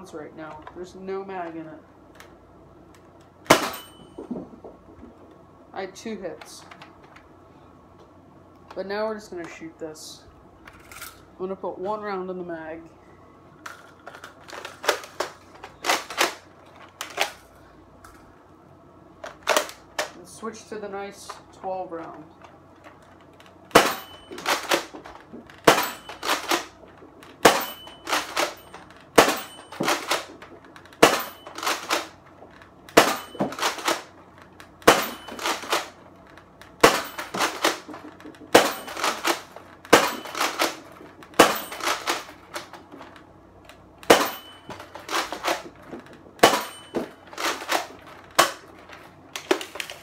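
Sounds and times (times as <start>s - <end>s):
plastic priming clacks: 24.2s - 43.8s.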